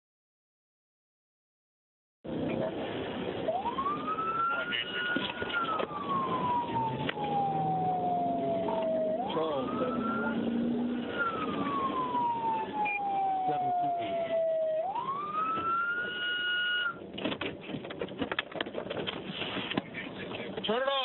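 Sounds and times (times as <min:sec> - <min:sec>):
engine and road noise: 0:02.3 - 0:21.0
police siren wailing: 0:03.4 - 0:17.0.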